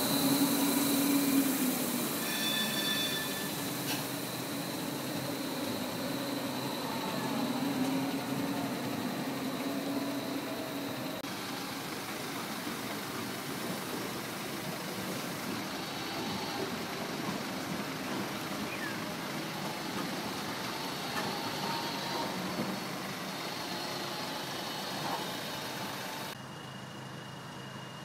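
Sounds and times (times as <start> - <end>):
thin steady high tone: 0.0 - 11.2
tram running rumble: 0.0 - 26.4
street background: 0.0 - 28.0.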